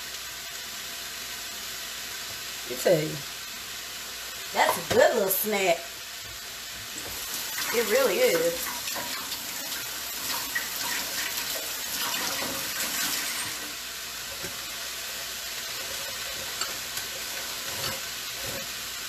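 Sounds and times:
food sizzling in a pan: 0:00.0 - 0:19.0.

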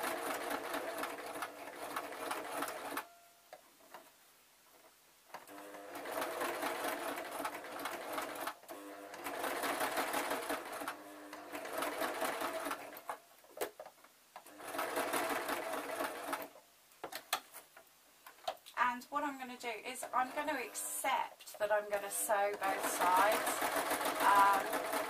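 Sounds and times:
sewing machine stitching: 0:00.0 - 0:03.1, 0:05.4 - 0:13.2, 0:14.4 - 0:16.5, 0:22.1 - 0:25.0.

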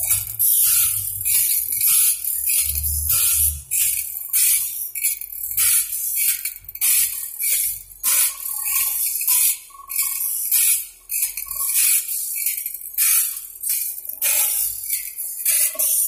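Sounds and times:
grinding wheel rasping on steel: 0:00.0 - 0:06.0.

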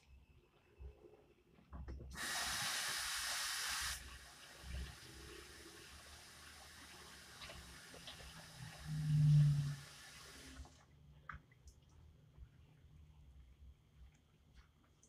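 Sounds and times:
oil sizzling in a frying pan: 0:02.2 - 0:08.9.

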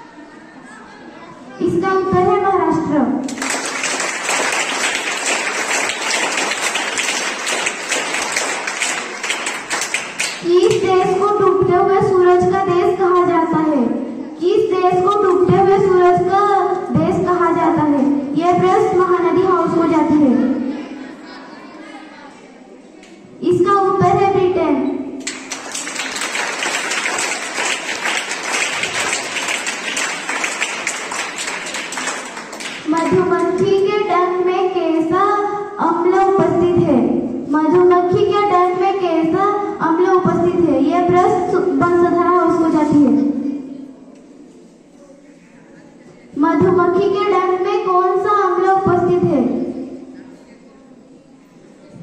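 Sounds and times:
group clapping: 0:03.2 - 0:11.3, 0:25.2 - 0:33.8
children applauding: 0:03.3 - 0:10.5, 0:25.2 - 0:33.1.

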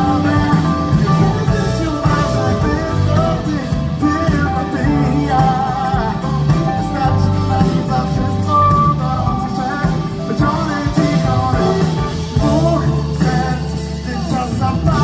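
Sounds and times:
live pop-rock band playing: 0:00.0 - 0:15.0
man singing into microphone: 0:00.0 - 0:15.0.

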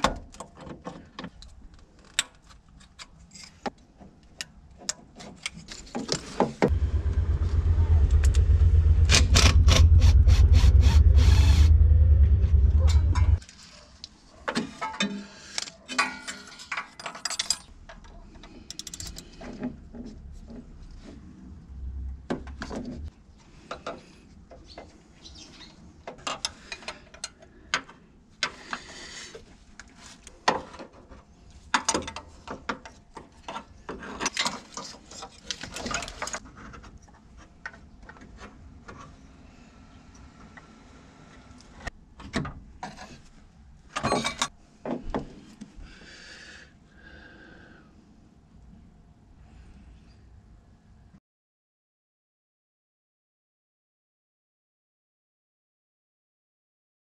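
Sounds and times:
cordless power tool running: 0:06.7 - 0:13.4.

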